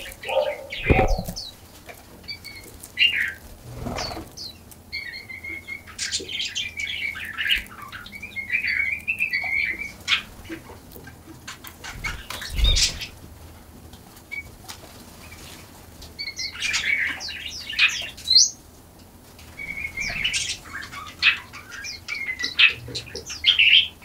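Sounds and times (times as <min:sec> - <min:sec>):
songbirds chirping: 0:00.0 - 0:24.0
bird wings fluttering: 0:00.8 - 0:01.8, 0:03.3 - 0:04.5.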